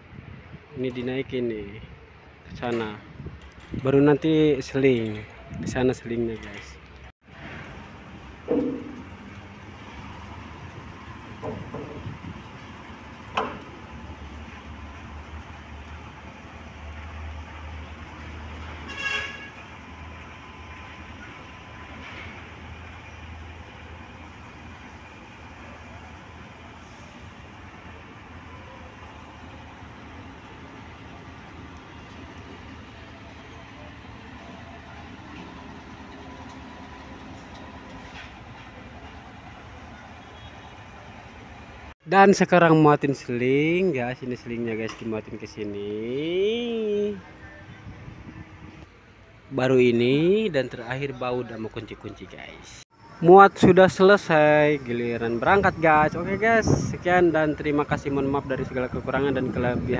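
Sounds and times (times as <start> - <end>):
diesel machinery rumbling: 0.0 - 59.9
heavy engine humming: 4.8 - 41.9
sharp knock: 8.5 - 9.2
short horn toot: 18.9 - 19.6.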